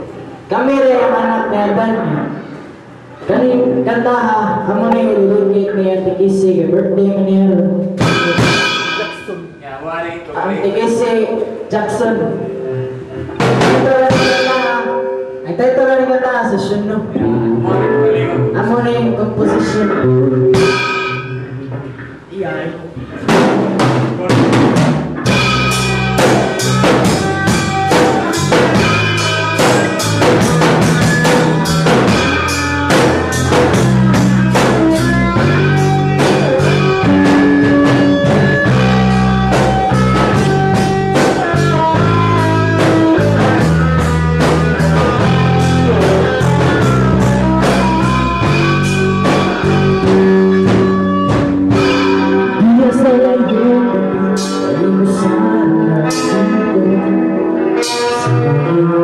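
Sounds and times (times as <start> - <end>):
bass: 0.0 - 59.0
drum kit beat: 7.8 - 9.6, 11.9 - 15.2, 17.2 - 22.3, 22.9 - 55.2
person singing: 13.6 - 15.2, 17.0 - 20.8, 51.9 - 59.0.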